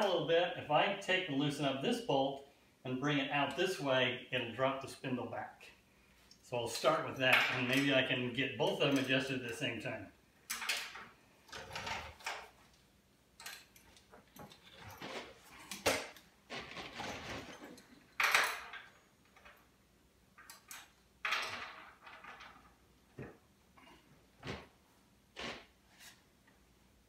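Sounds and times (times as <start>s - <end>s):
wrench clinking on metal bolts: 13.4s - 14.8s.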